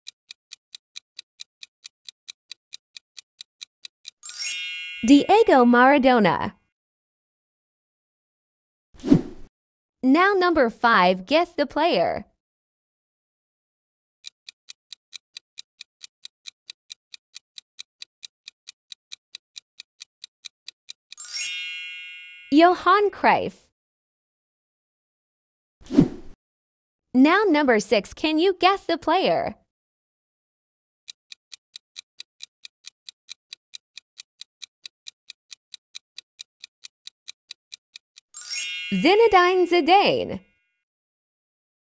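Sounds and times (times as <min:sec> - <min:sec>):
clock ticking: 0:00.0 - 0:05.8, 0:14.2 - 0:21.3, 0:31.1 - 0:39.9.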